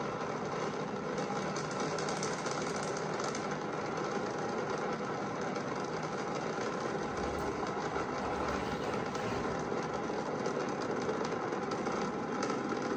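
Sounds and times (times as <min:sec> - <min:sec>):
rocket engines crackling rumble: 0:06.6 - 0:10.8.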